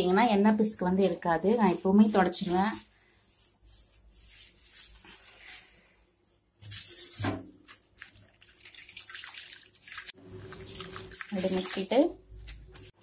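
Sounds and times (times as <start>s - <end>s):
water sloshing in metal plate: 6.9s - 12.0s.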